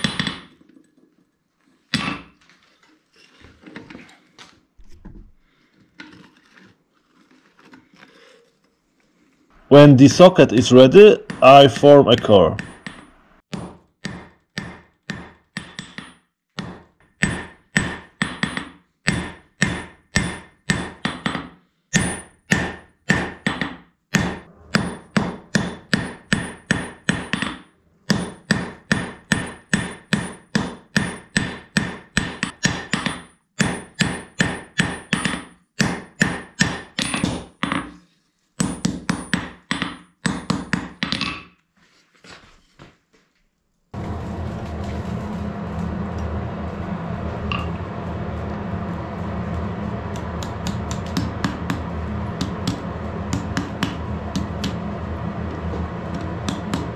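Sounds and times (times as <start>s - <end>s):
hammer striking metal on anvil: 11.2s - 37.8s, 47.3s - 48.3s, 49.3s - 54.8s, 55.6s - 56.9s
ringing anvil tone: 45.9s - 56.9s.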